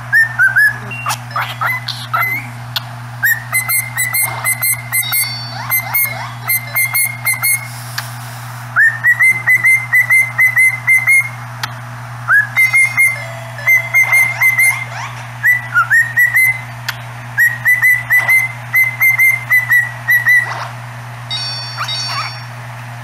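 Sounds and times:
steady low hum: 0.0 - 23.0
cockatiel whistling: 0.1 - 2.5, 3.2 - 7.7, 8.8 - 11.4, 12.3 - 16.6, 17.4 - 20.7, 21.3 - 22.5.

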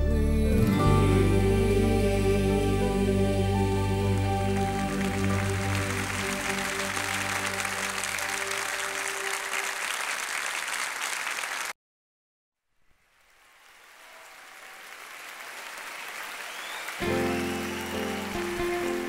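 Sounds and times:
music: 0.0 - 9.7, 17.0 - 19.0
sustained music tones: 0.0 - 9.8
people clapping: 4.1 - 11.8, 13.2 - 19.0
rain-like hiss: 12.8 - 16.0.

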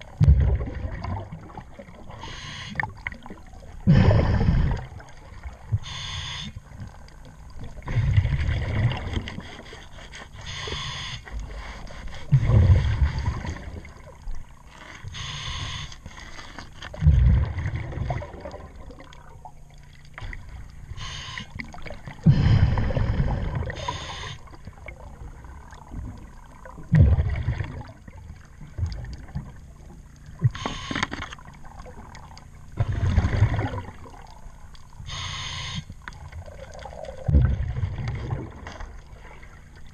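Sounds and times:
exhaled air bubbling: 0.0 - 15.9, 16.9 - 39.9
regulator inhale hiss: 2.1 - 2.8, 5.8 - 6.6, 10.3 - 12.3, 15.1 - 16.0, 21.0 - 21.6, 22.2 - 24.5, 30.5 - 31.1, 35.0 - 36.0.

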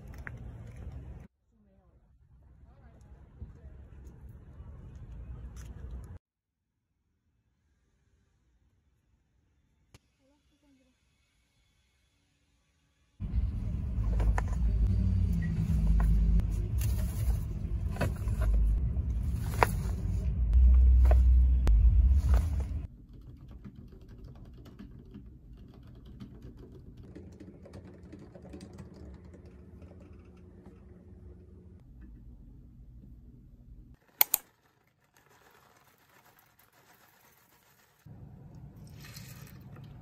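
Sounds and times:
soft laptop keyboard typing: 23.0 - 30.3.

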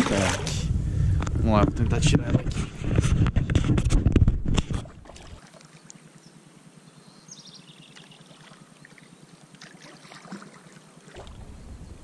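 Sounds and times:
water lapping against kayak hull: 0.0 - 6.0, 7.9 - 11.5.

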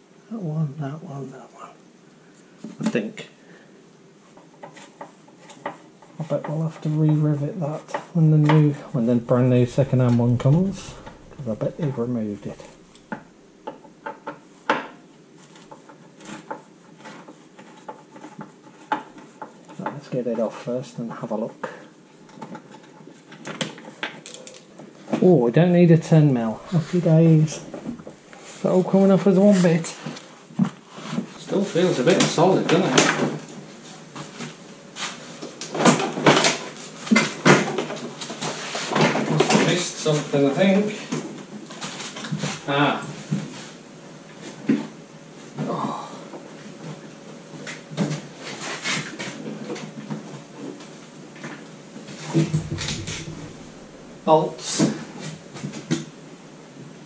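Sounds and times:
plastic panel clunking and knocking: 52.5 - 54.2.

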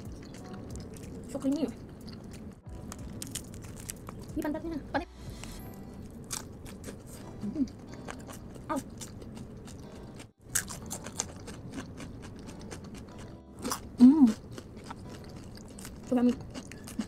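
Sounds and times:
crunchy chewing: 0.0 - 4.4, 6.1 - 17.0.

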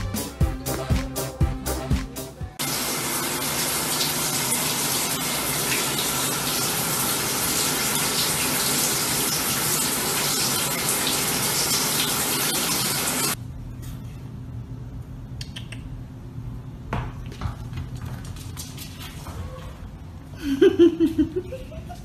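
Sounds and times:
music with a sharp beat: 0.0 - 2.6
shower running on tiled floor: 2.6 - 13.4.

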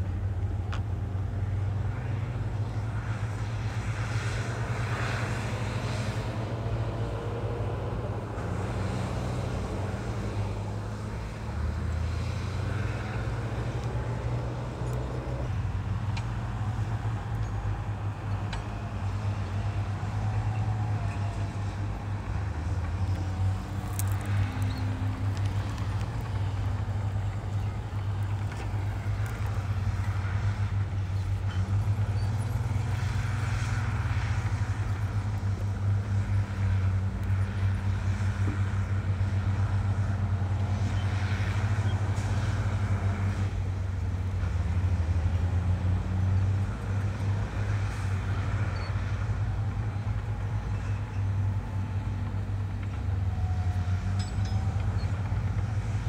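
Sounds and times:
heavy diesel engines droning: 0.0 - 56.0.

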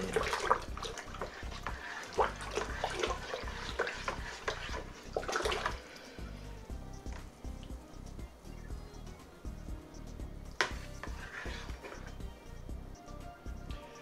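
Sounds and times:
liquid sloshing in bucket: 0.0 - 6.2.

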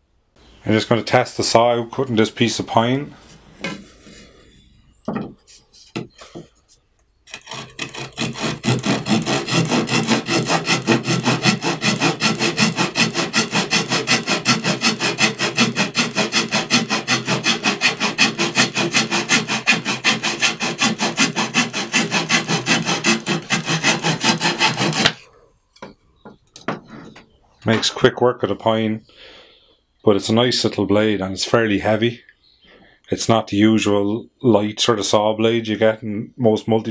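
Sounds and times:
saw blade cutting wood: 7.3 - 25.3.

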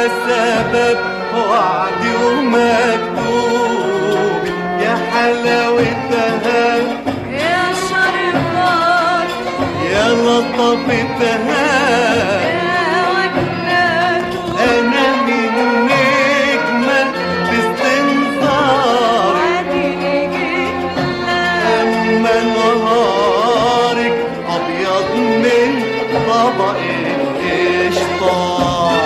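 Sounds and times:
arabic-style instrumental accompaniment: 0.0 - 29.0.

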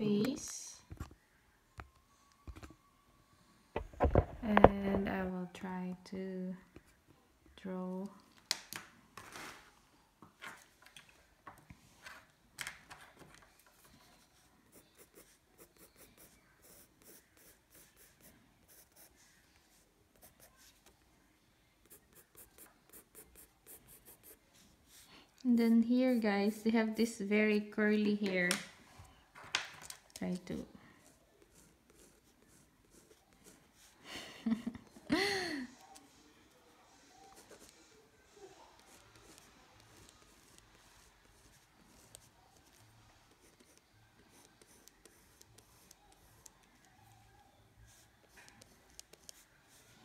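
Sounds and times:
pencil strokes on paper: 13.7 - 21.0, 21.8 - 26.7, 31.0 - 34.0, 37.0 - 46.9.

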